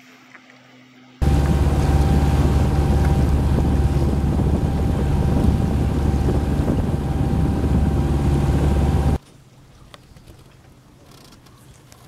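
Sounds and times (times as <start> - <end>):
boat engine running: 1.2 - 9.2
wind noise on microphone: 1.2 - 9.2.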